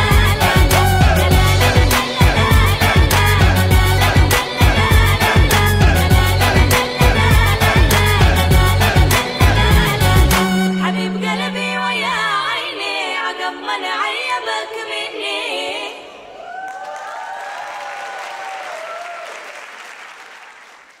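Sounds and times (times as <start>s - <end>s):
wavering singing: 0.0s - 16.3s
sliding low synth note: 8.2s - 13.2s
audience applause and cheering: 16.3s - 21.0s.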